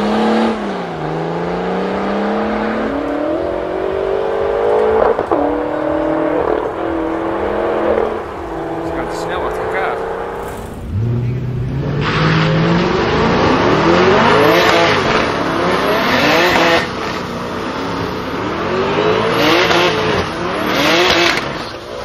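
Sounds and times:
car engines revving hard: 0.0 - 22.0
spinning tyres squealing: 4.7 - 22.0.

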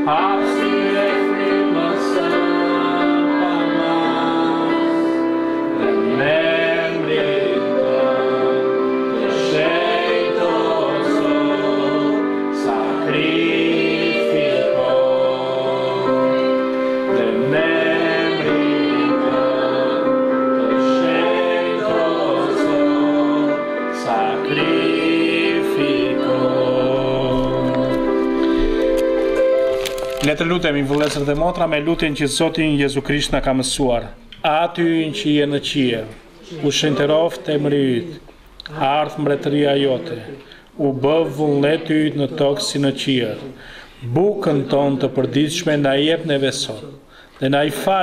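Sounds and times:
instrumental accompaniment: 0.0 - 32.6
congregation singing: 0.0 - 33.4, 34.5 - 48.0.

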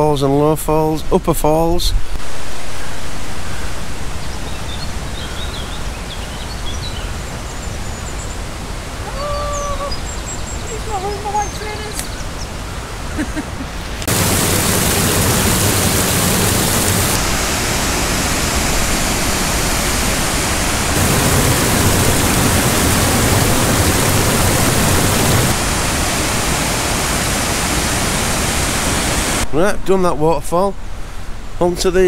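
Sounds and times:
faint calls: 9.0 - 17.2
waterfall rushing: 13.8 - 29.5.

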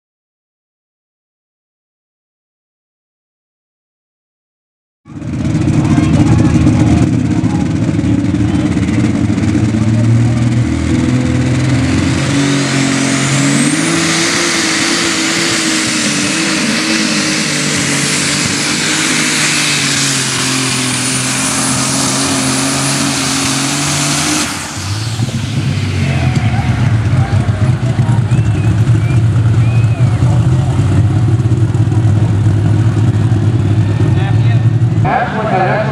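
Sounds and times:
high whine: 5.1 - 35.9
tractor engine at full throttle: 5.1 - 35.9.

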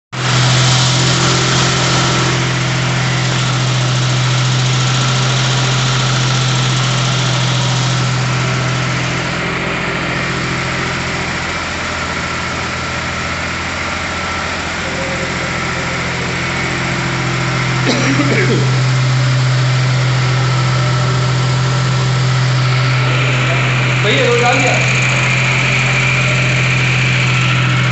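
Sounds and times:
generator engine humming: 0.1 - 27.9.

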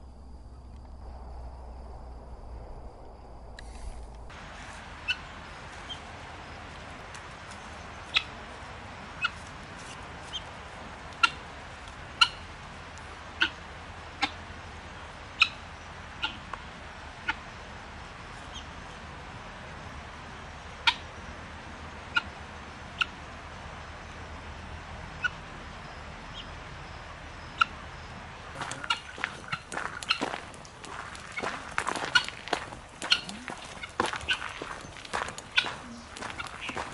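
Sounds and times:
guineafowl calls: 4.8 - 18.8, 20.7 - 21.2, 22.0 - 23.2, 25.1 - 36.9.

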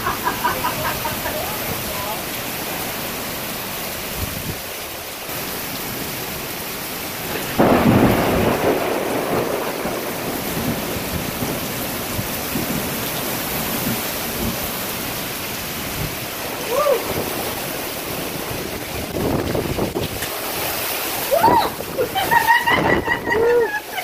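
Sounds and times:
heavy rain pouring: 0.0 - 24.0
loud thunder clap rumbling: 7.3 - 13.0.

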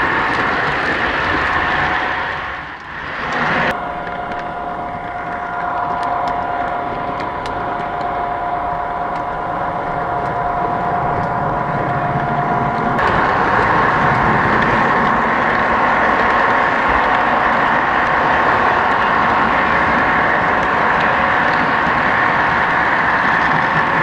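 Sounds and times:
model train mechanical hum: 0.0 - 24.0.

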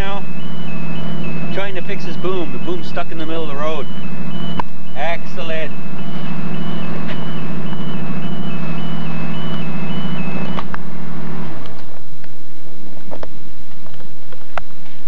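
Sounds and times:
two-pitch alarm beeping: 0.0 - 10.8
lift engine running: 0.0 - 12.2.

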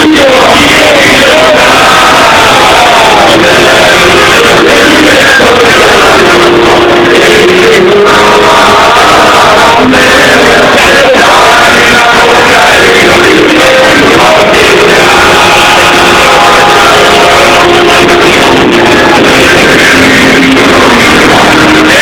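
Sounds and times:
live amplified band music: 0.0 - 22.0
person singing: 0.0 - 22.0.

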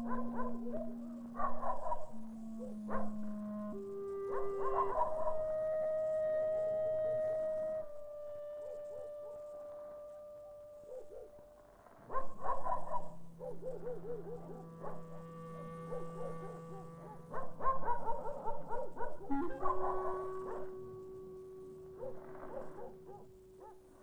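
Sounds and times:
dogs barking and yelping: 0.0 - 3.2, 12.1 - 15.1, 15.9 - 20.8, 21.9 - 23.9
eerie film score: 0.0 - 24.0.

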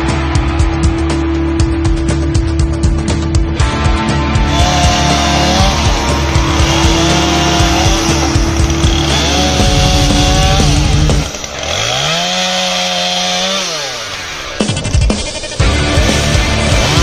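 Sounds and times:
chainsaw revving: 4.4 - 17.0.

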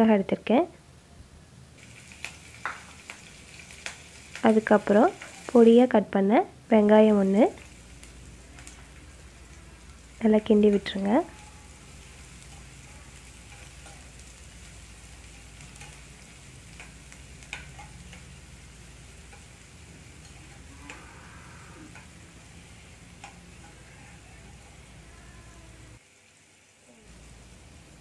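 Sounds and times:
onion sizzling in oil: 1.7 - 28.0.

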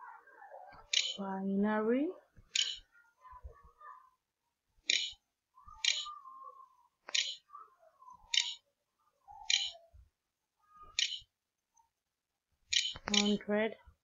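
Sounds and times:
computer mouse button clicking: 0.9 - 1.2, 4.9 - 5.2, 7.1 - 7.4, 8.3 - 8.6, 9.5 - 9.8, 11.0 - 11.2, 12.8 - 13.4.

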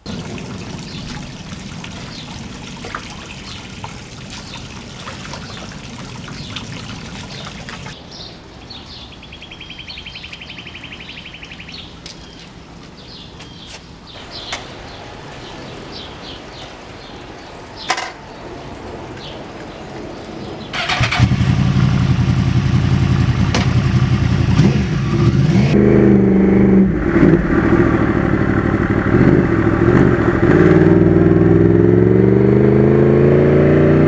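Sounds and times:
water trickling: 0.0 - 8.0
birds chirping: 0.0 - 21.3
bird trill: 5.4 - 12.5.

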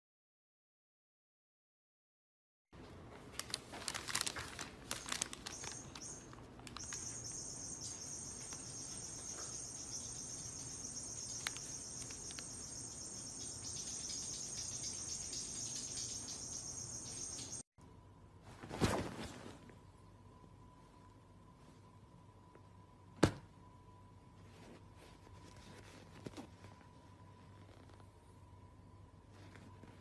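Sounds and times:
paper bag crackling: 3.1 - 7.1
high-pitched insect drone: 6.8 - 17.6.

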